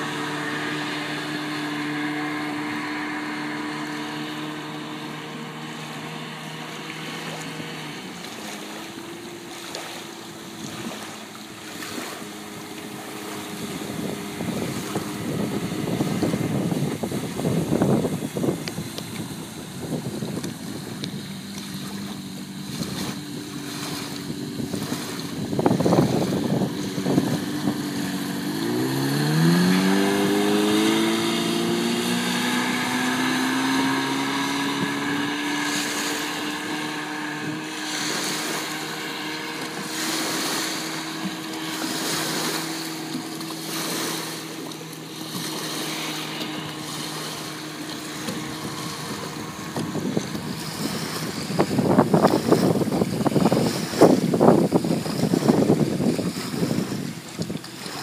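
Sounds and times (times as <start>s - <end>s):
outboard motor running: 0.0s - 58.0s
wind buffeting microphone: 0.0s - 58.0s.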